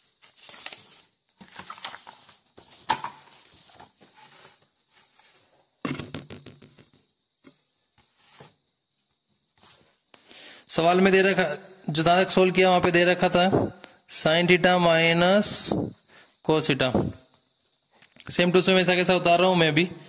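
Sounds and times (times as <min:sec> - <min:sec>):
paper rustling: 0:00.0 - 0:05.6.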